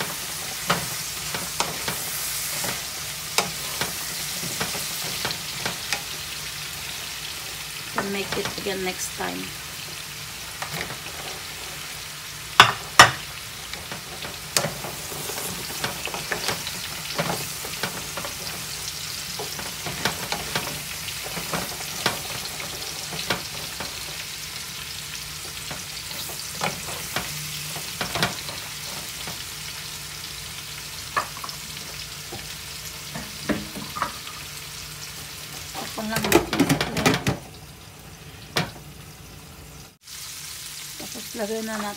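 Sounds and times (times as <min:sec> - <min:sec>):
vegetables sizzling in oil: 0:00.0 - 0:41.9
spatula knocking against pan: 0:12.6 - 0:13.2.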